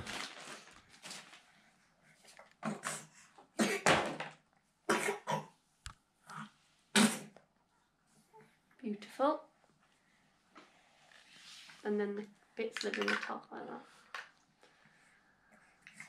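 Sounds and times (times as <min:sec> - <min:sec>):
person coughing: 0:02.6 - 0:03.9, 0:04.9 - 0:05.5.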